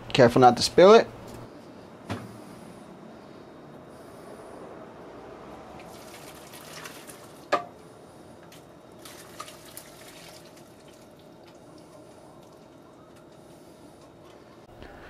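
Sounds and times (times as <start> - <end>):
liquid pouring and splashing: 5.8 - 7.7, 8.5 - 13.5.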